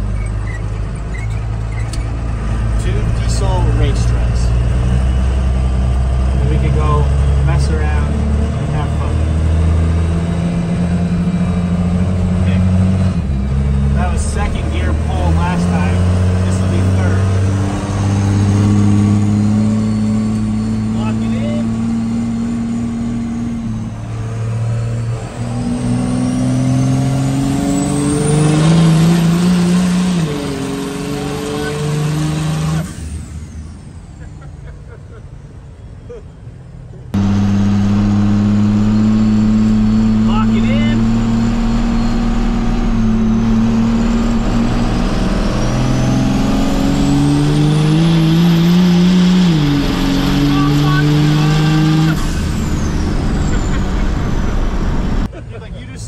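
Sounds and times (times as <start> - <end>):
diesel engine at full throttle: 0.0 - 56.0
turbo whistle rising: 41.0 - 48.5.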